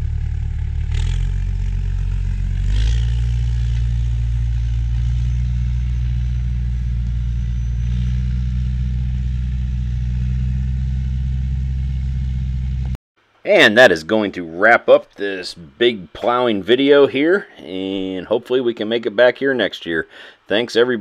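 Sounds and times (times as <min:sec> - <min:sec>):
tractor diesel engine under load: 0:00.0 - 0:13.0.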